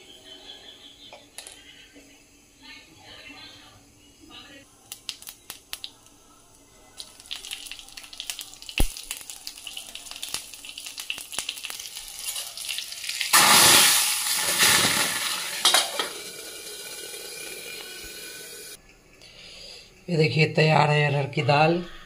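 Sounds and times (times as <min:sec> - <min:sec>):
loud sizzle: 0:04.7 - 0:18.8
spices crackling in hot oil: 0:04.8 - 0:18.8.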